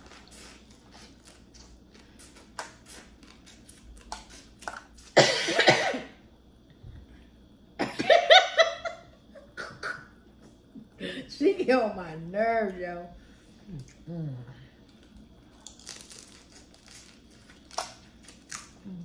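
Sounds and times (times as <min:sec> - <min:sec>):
person coughing: 0:05.2 - 0:06.2, 0:07.8 - 0:08.3
crawfish shells being peeled: 0:14.9 - 0:18.8.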